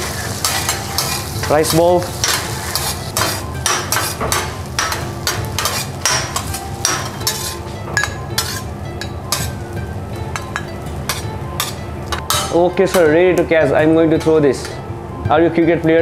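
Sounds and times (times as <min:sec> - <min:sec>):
metal spatulas clanking on griddle: 0:00.0 - 0:09.6, 0:10.3 - 0:13.5
light sizzle: 0:00.0 - 0:14.8.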